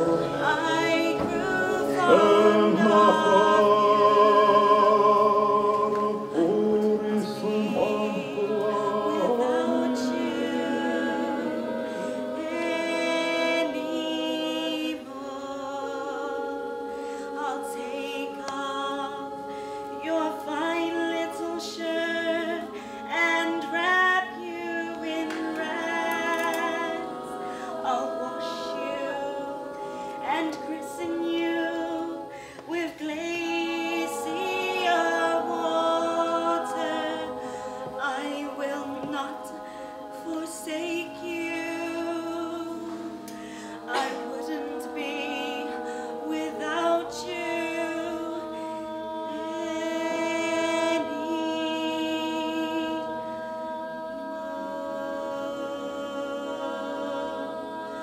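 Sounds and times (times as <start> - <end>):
a cappella group singing: 0.0 - 58.0.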